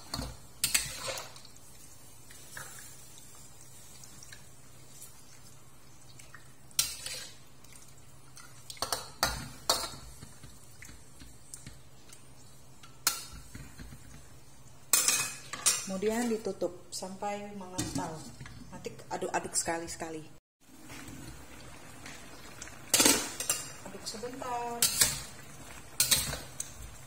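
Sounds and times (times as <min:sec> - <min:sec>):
metal spatula scraping a wok: 0:06.8 - 0:07.4.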